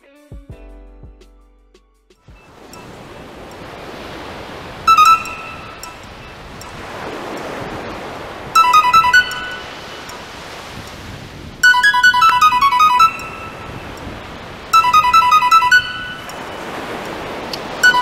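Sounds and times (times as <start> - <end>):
sea surf: 2.2 - 18.0
mobile phone ringtone: 2.3 - 3.3, 4.8 - 6.8, 8.5 - 10.3, 11.6 - 17.0, 17.7 - 18.0.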